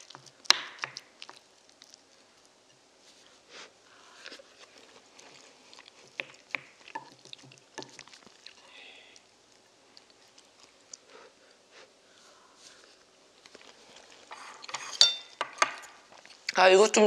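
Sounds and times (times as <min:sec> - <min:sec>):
soft chewing and mouth clicks: 0:00.0 - 0:14.9, 0:15.5 - 0:16.6.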